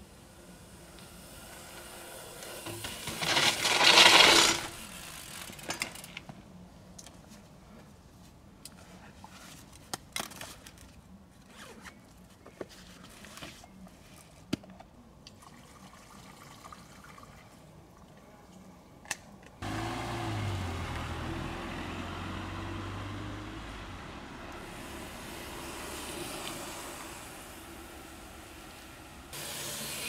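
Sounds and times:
car driving by: 19.6 - 29.3.

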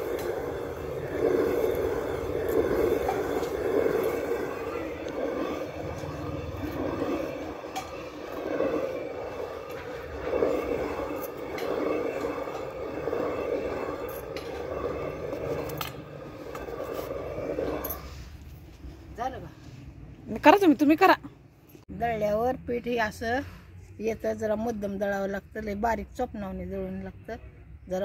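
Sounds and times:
stone rubbing on stone: 0.0 - 18.4.

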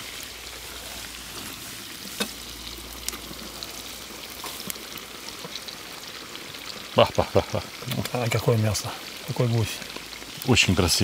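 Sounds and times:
meat sizzling in fat: 0.0 - 11.0.

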